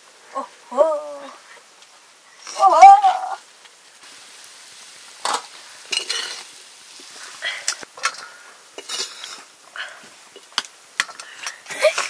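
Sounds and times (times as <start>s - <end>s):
metal spoon scraping a pot: 5.9s - 6.5s, 8.8s - 9.5s.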